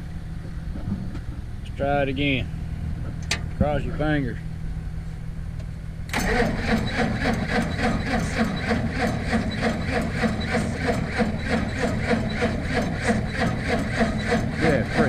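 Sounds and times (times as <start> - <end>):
low engine hum: 0.0 - 15.0
starter cranking engine: 6.1 - 15.0.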